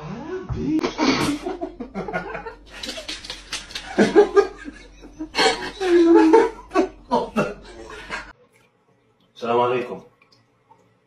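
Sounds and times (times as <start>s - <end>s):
person laughing: 0.9s - 8.3s.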